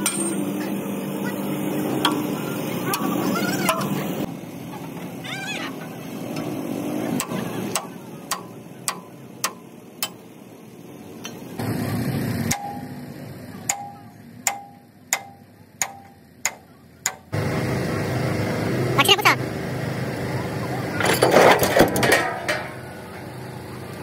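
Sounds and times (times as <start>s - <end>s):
hammer striking steel: 0.0s - 0.6s, 7.2s - 10.2s, 12.4s - 13.1s, 13.7s - 17.4s.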